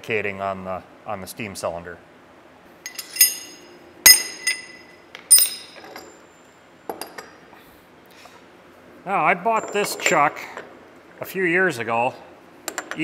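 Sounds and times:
hammer striking metal: 0:02.9 - 0:05.8
light metal clinks: 0:02.9 - 0:06.2.

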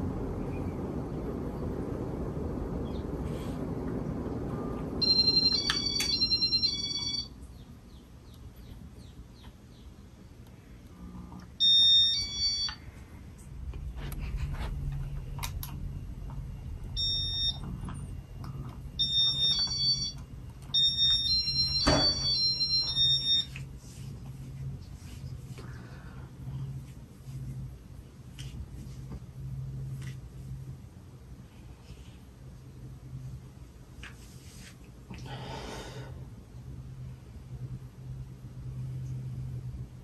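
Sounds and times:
low motor hum: 0:00.0 - 0:31.7
ceiling fan noise: 0:00.0 - 0:40.0
high electronic beeps: 0:16.9 - 0:17.7, 0:19.0 - 0:20.2.

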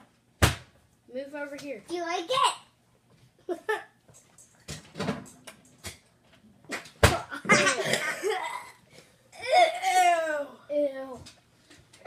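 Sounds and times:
boys laughing: 0:03.4 - 0:04.0, 0:07.2 - 0:08.8.

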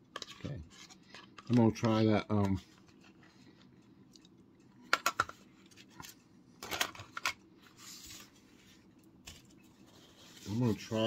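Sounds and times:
soft rustle: 0:07.6 - 0:11.0.

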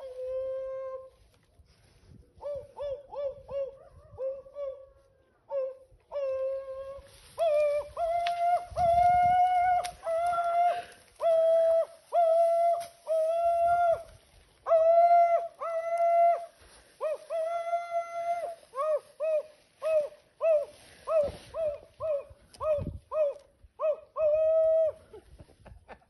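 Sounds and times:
man howling like a dog: 0:05.5 - 0:25.2.

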